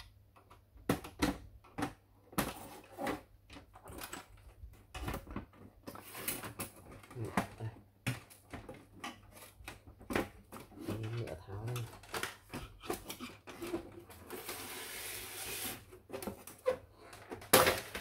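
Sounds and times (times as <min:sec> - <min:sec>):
plastic parts clicking and knocking: 0:00.0 - 0:14.3, 0:16.0 - 0:18.0.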